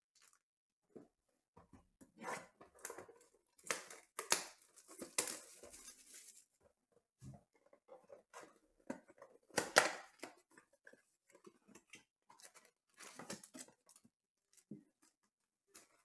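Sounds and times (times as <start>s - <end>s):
paper and card rustling: 2.6s - 6.6s, 8.0s - 16.0s
cardboard scraping and rustling: 4.8s - 6.6s.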